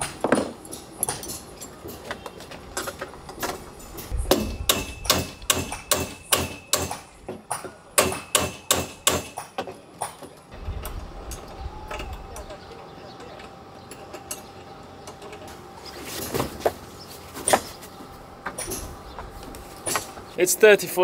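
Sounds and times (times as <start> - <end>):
hammer striking wood: 4.3 - 9.7.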